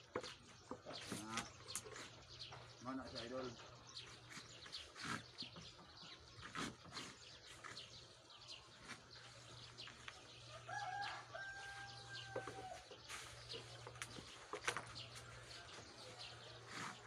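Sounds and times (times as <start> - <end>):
rooster crowing: 10.5 - 12.9.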